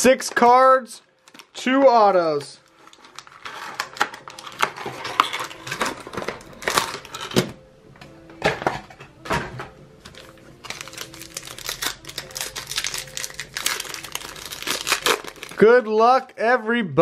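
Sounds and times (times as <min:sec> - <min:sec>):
plastic wrap crackling: 0:02.6 - 0:07.2, 0:10.1 - 0:16.4.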